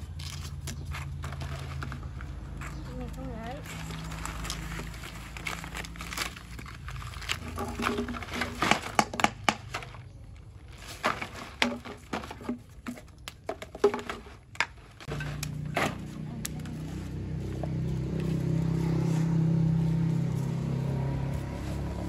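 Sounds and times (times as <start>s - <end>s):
plastic containers clicking on concrete: 6.7s - 16.8s.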